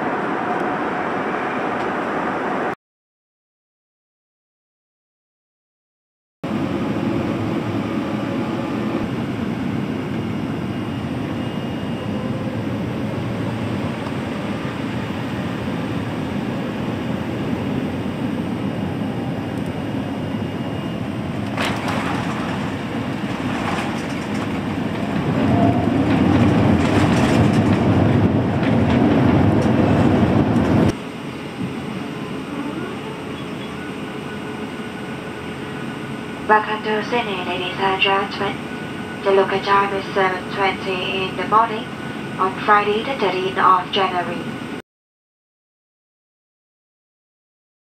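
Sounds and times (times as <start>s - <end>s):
aircraft cabin hum: 6.5s - 44.8s
low rumble of landing roll: 21.5s - 30.9s.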